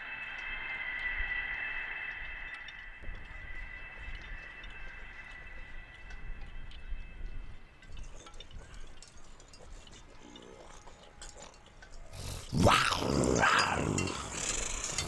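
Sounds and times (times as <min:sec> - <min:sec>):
biting and chewing: 0:07.8 - 0:15.0
zombie voice growling and snarling: 0:12.2 - 0:15.0.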